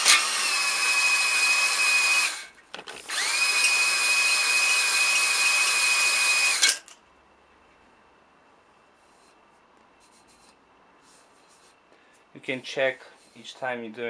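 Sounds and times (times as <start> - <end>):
power drill whining: 0.0 - 7.0.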